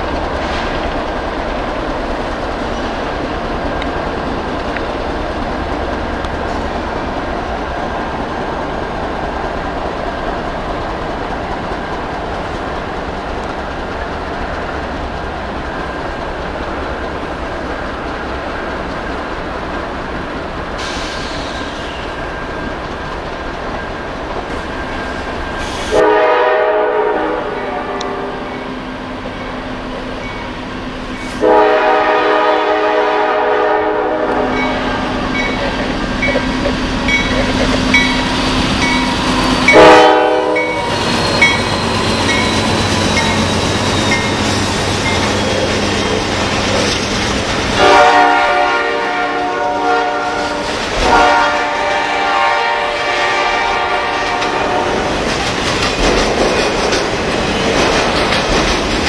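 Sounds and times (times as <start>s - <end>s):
freight train rumbling past: 0.0s - 59.0s
locomotive air horn blasts: 25.9s - 28.4s, 31.4s - 35.1s, 39.7s - 40.9s, 47.8s - 55.0s.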